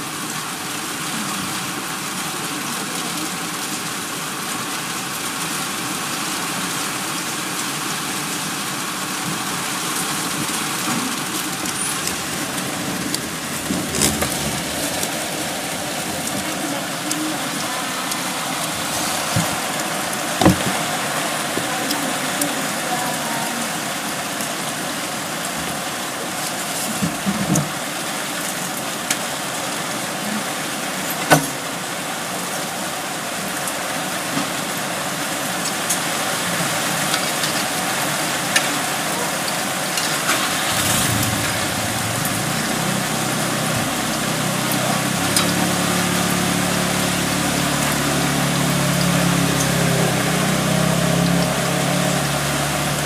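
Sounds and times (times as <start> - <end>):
heavy rain pouring: 0.0 - 53.0
sharp knocks and clatters: 20.4 - 20.8.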